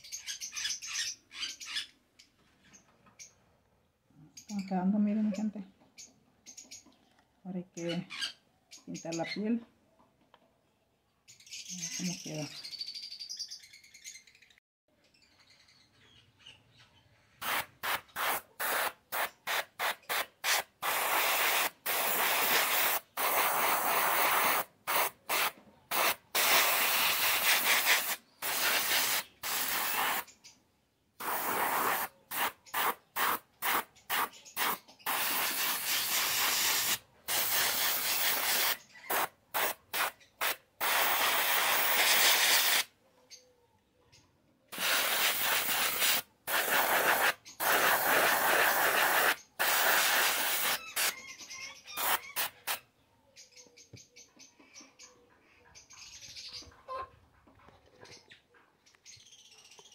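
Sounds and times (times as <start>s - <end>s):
paint brush hissing strokes: 17.4s - 30.3s, 31.2s - 42.9s, 44.8s - 51.1s, 52.0s - 52.8s.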